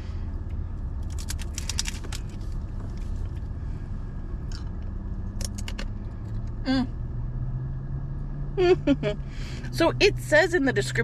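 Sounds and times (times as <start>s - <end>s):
low hum in car cabin: 0.0s - 11.0s
tostada shell crunching: 0.8s - 3.5s.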